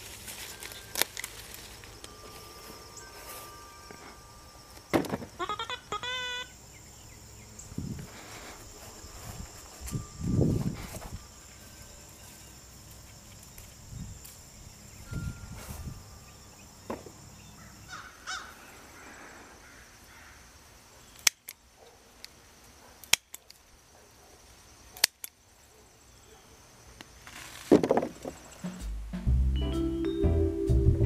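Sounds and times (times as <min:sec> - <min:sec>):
scissors snipping stems: 0:23.0 - 0:23.6, 0:24.9 - 0:25.4.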